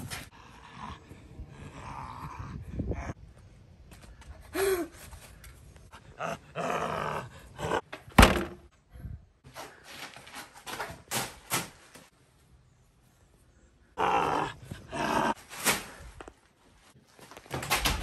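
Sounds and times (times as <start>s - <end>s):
person groaning and growling: 6.1s - 7.8s, 14.0s - 15.4s
sharp loud thunk: 8.2s - 8.7s.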